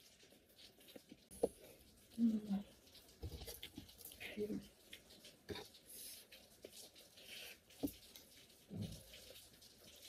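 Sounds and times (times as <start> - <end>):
people chewing: 0.0 - 10.0.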